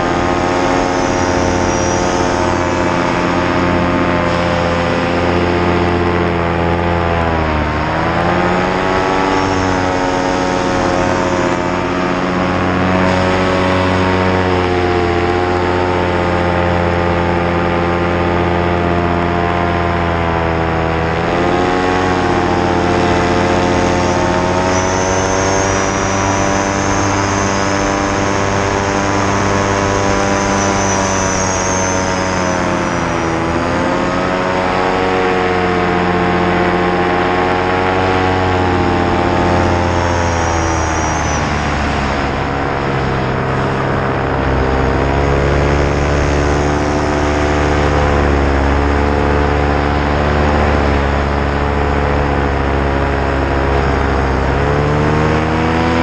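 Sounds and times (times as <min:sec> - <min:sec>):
paramotor engine and propeller: 0:00.0 - 0:56.0.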